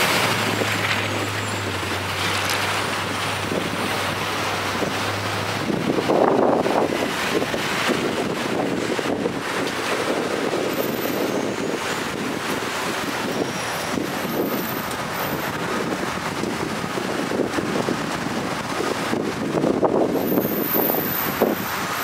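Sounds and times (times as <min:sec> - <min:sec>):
road and traffic noise: 0:00.0 - 0:22.0
wind on microphone: 0:00.0 - 0:22.0.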